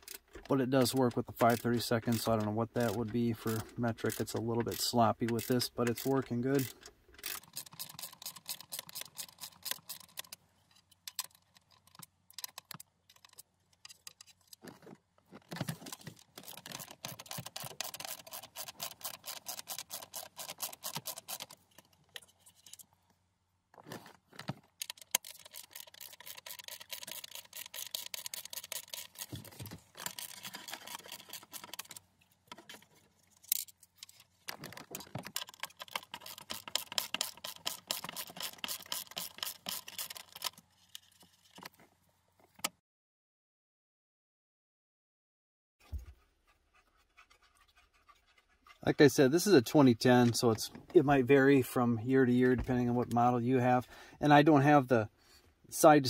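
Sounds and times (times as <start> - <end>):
hand ratchet clicking rapidly: 1.4 - 10.3, 16.4 - 21.6, 24.8 - 31.9, 35.4 - 40.5.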